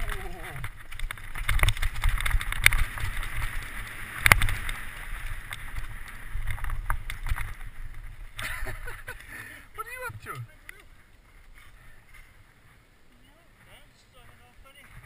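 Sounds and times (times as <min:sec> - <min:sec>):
bike rattling and knocking: 0:00.0 - 0:09.3
wind rumbling on microphone: 0:00.0 - 0:09.3
tyres on dirt: 0:00.0 - 0:15.0.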